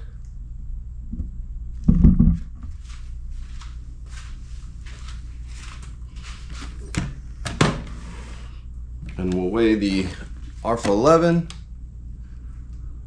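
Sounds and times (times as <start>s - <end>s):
soft rustling: 2.7s - 6.9s.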